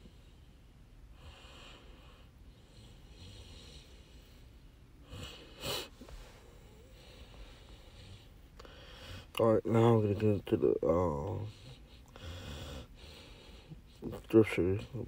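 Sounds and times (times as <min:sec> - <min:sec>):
person breathing near microphone: 0:00.0 - 0:09.4, 0:11.2 - 0:14.1.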